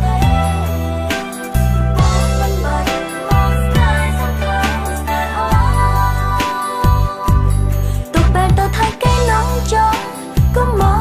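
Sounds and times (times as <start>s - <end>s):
synth chords: 0.0s - 8.4s.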